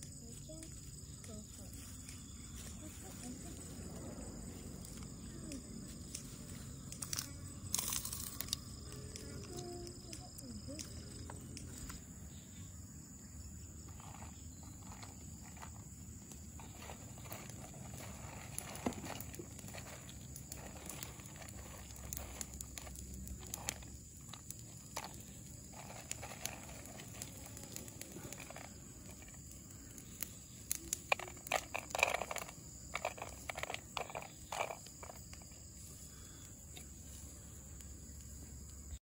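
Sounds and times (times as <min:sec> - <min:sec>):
seeds clicking in plastic bowl: 0:06.0 - 0:12.0, 0:13.9 - 0:35.6.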